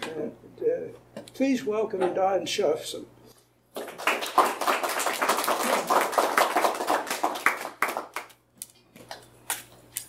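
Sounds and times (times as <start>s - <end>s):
audience applauding: 3.8s - 8.4s.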